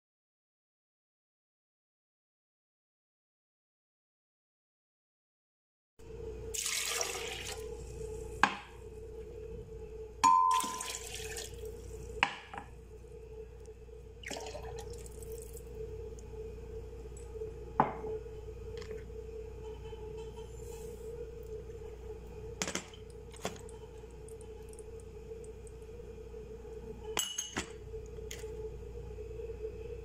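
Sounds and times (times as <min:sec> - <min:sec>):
steady low hum: 0:06.0 - 0:30.0
liquid pouring into blender jar: 0:10.5 - 0:11.8, 0:14.2 - 0:15.6.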